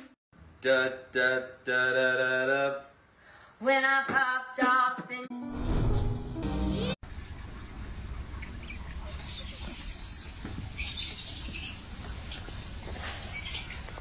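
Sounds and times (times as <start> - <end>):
baby monkey squeaking: 9.2 - 14.0.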